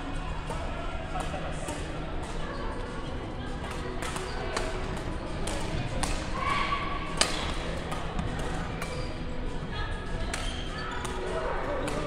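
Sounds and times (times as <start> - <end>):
racket hitting shuttlecock: 3.7 - 6.4, 7.1 - 9.1, 10.3 - 12.0
shoe squeak: 10.4 - 11.2.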